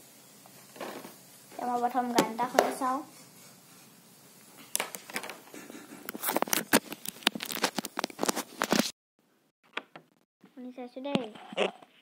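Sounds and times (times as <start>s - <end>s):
hand rubbing camera microphone: 5.4s - 8.6s.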